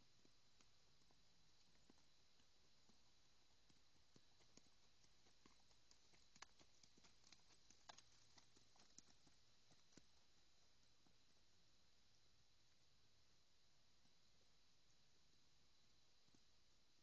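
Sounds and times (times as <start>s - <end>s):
hoofbeats on soft dirt: 0.0s - 13.0s.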